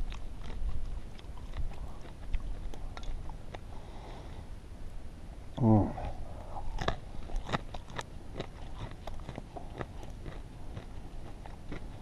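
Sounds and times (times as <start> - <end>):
person chewing crispy bacon: 0.0 - 3.7, 6.0 - 12.0.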